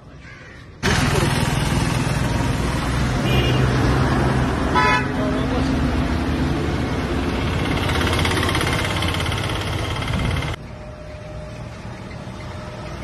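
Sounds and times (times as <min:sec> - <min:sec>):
street traffic noise: 0:00.0 - 0:13.0
motor vehicle engine running: 0:00.8 - 0:13.0.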